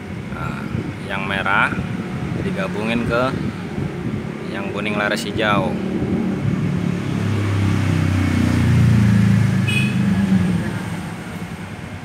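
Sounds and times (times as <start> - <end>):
vehicle engine passing by: 2.3 - 11.8.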